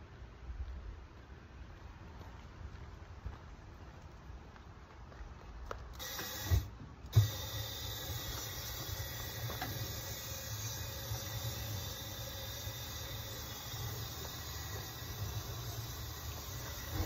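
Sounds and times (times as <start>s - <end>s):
propane torch hissing: 6.0s - 17.0s.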